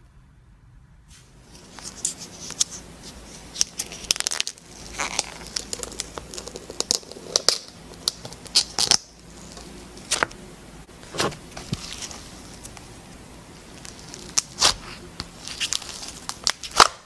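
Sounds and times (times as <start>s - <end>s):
slime crackling and popping: 3.5s - 10.4s, 13.6s - 17.0s.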